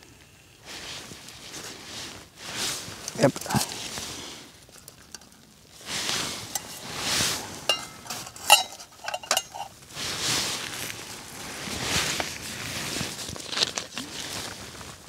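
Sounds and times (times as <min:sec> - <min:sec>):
metal pot clinking and scraping: 0:04.7 - 0:05.4, 0:06.0 - 0:09.8.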